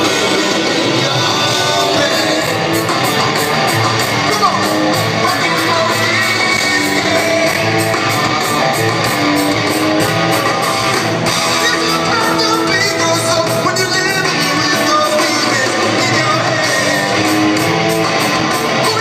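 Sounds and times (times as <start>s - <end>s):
electric guitars: 0.0s - 19.0s
live rock band: 0.0s - 19.0s
steady drum beat: 0.0s - 19.0s.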